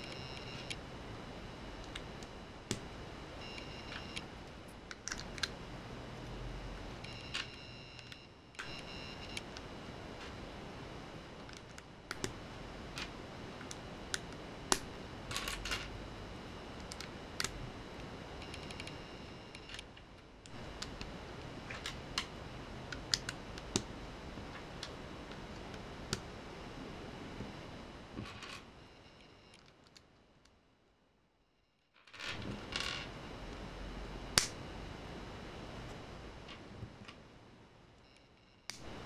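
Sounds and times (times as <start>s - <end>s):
steady low hiss: 0.0s - 31.4s, 32.0s - 39.0s.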